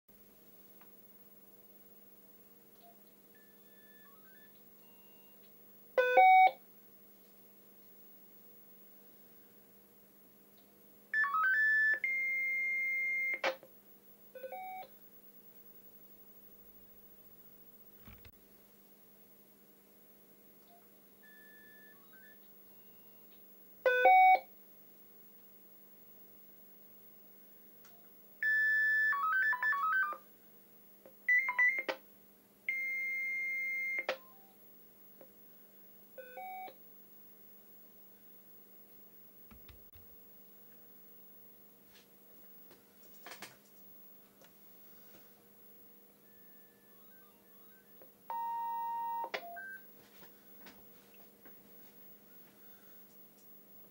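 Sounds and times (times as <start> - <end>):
long steady high tone: 46.2 - 49.8.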